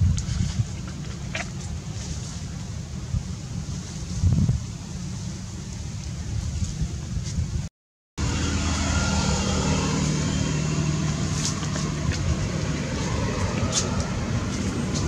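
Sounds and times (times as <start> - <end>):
vehicle engine humming: 8.2 - 15.0.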